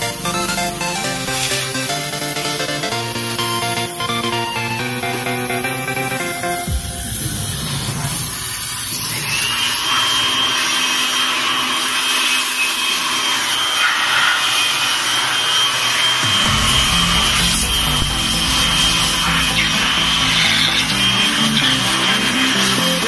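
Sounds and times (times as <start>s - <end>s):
steady high tone: 0.0s - 9.8s, 16.2s - 23.0s
water jet spraying metal fins: 15.9s - 23.0s.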